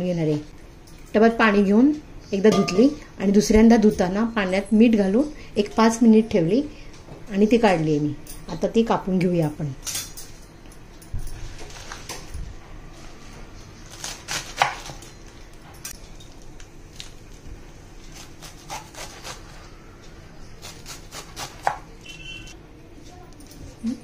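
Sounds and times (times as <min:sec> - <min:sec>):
knife chopping on wooden board: 0:20.8 - 0:21.8.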